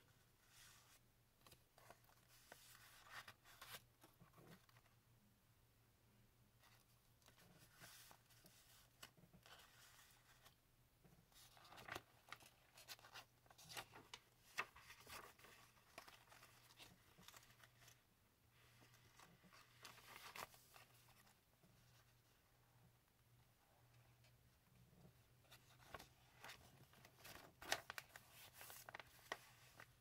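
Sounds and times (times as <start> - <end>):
paper pages rustling: 0.5 - 4.9, 6.6 - 10.5, 11.3 - 18.0, 18.6 - 22.0, 25.5 - 30.0.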